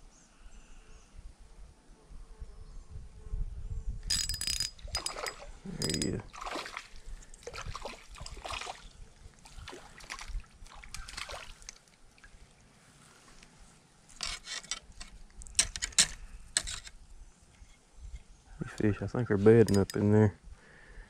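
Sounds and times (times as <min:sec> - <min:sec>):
water splashing and trickling: 0:04.2 - 0:13.4.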